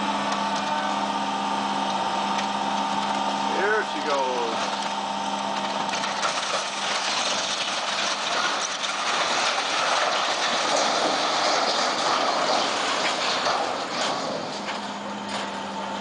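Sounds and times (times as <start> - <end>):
timber and metal structure collapsing: 5.9 - 15.6.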